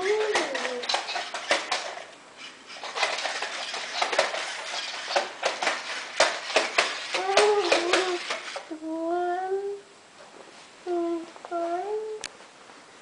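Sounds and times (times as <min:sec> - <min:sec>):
robot dog feet clicking and tapping: 0:00.0 - 0:02.0, 0:02.8 - 0:08.6.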